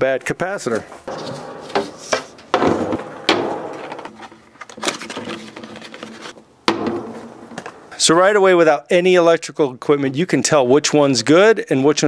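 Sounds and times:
metal cans knocking on tabletop: 1.1s - 4.4s, 6.7s - 7.9s.

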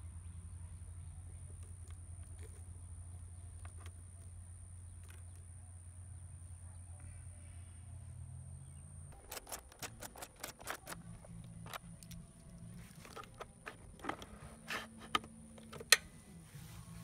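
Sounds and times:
plastic parts clicking and rattling: 9.1s - 16.0s.

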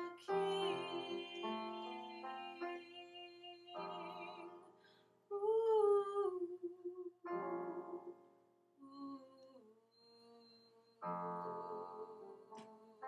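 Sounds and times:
woman singing: 0.0s - 4.5s, 5.3s - 8.1s
piano chords: 0.0s - 4.9s, 7.2s - 9.2s, 10.4s - 13.0s.

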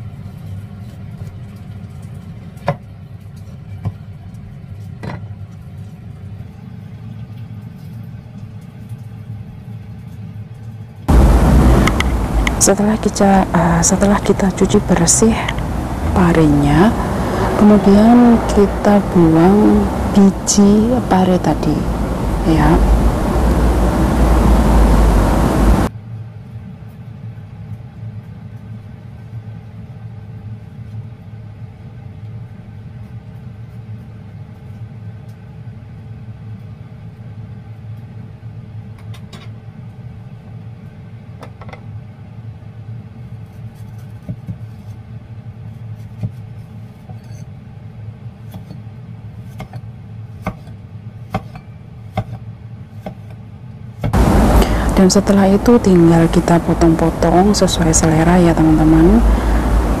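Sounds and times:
low hum: 11.1s - 25.9s, 54.2s - 60.0s
cleaver chopping on wooden block: 52.2s - 52.4s.

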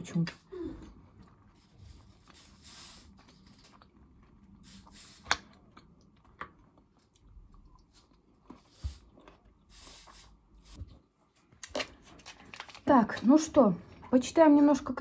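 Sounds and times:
close-up chewing salad: 0.8s - 10.7s.

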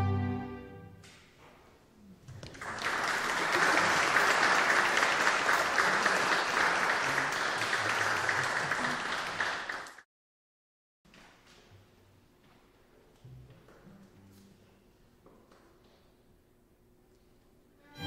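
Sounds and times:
audience applauding: 2.3s - 10.0s.

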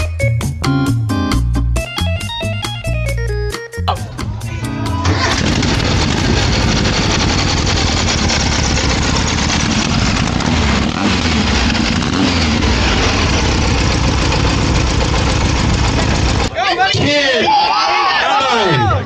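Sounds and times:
loud engine running roughly: 5.0s - 16.5s.

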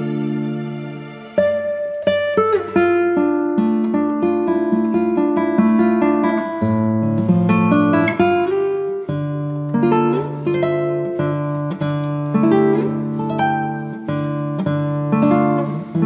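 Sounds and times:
plucked string instrument music: 0.0s - 16.0s.

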